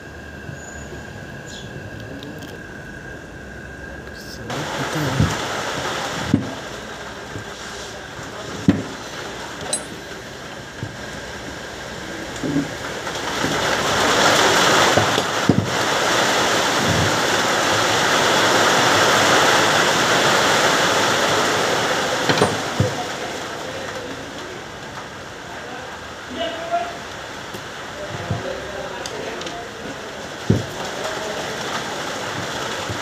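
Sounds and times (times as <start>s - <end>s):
metal parts knocking on housing: 9.7s - 10.0s.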